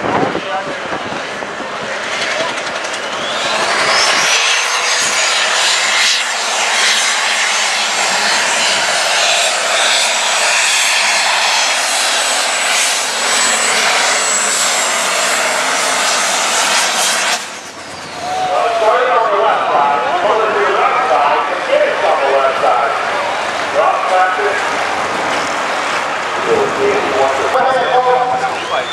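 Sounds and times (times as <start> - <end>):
high turbocharger whistle: 2.8 - 19.0, 27.6 - 28.9.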